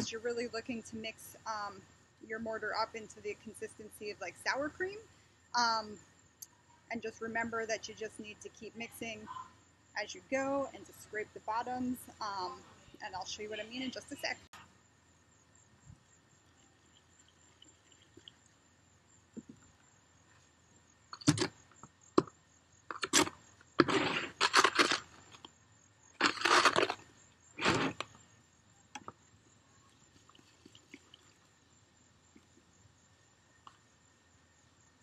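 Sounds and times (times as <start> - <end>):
mortar scraping in plastic bucket: 26.2 - 28.1.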